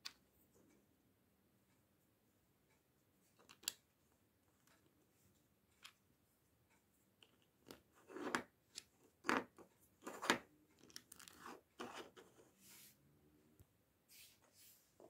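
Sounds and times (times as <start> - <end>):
plastic bricks clicking and snapping: 3.4 - 3.8, 7.2 - 12.0.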